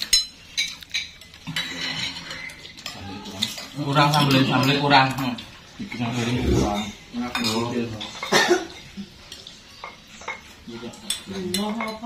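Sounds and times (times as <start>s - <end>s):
spoons clinking on plates: 0.0s - 12.0s
background voices: 6.0s - 7.1s.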